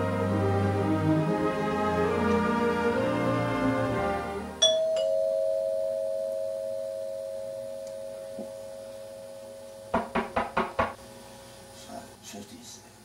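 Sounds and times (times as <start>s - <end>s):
two-tone doorbell chime: 4.6s - 9.9s.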